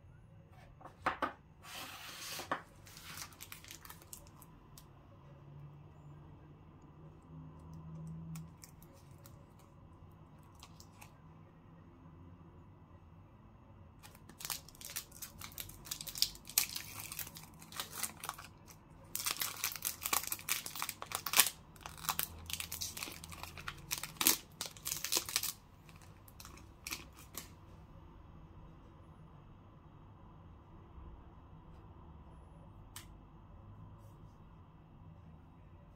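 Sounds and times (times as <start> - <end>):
foil wrapper crinkling: 2.8 - 4.5, 14.0 - 27.5
wrapper being torn open: 2.8 - 4.5, 14.0 - 27.5.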